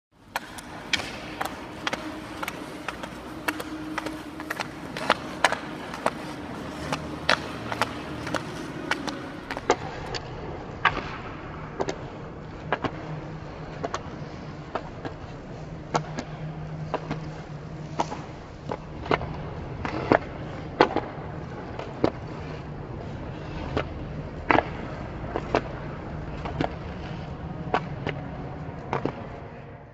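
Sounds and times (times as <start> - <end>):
low steady hum: 0.2 - 29.9
hockey stick clacking a puck: 0.3 - 10.2.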